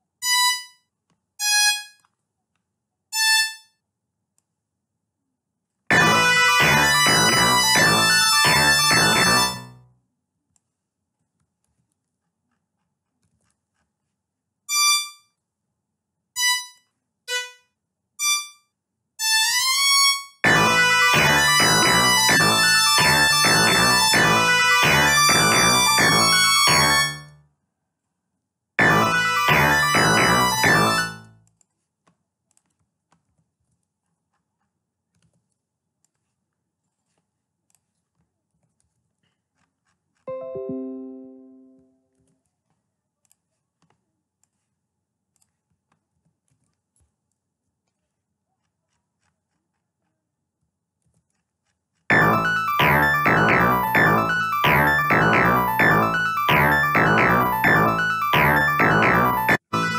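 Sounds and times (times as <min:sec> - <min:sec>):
many notes playing together: 0:05.9 - 0:09.7, 0:20.5 - 0:27.2, 0:28.8 - 0:31.2, 0:52.1 - 0:59.9
synthesized violin notes: 0:05.9 - 0:09.8, 0:17.3 - 0:17.6, 0:20.4 - 0:27.3, 0:28.8 - 0:31.3, 0:40.3 - 0:41.9, 0:52.1 - 0:59.9
computer mouse and keyboard clicks: 0:10.5 - 0:14.2, 0:31.4 - 0:40.3, 0:42.2 - 0:52.1.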